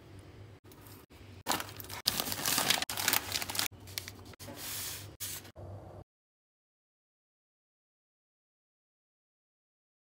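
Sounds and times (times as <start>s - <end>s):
paper crinkling and rustling: 1.5s - 4.6s.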